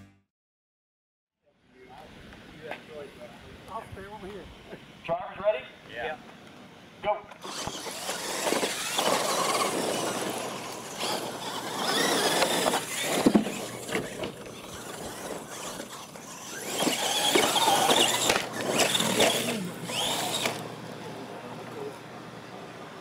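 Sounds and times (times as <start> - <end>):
rc truck motors whining: 7.3 - 23.0.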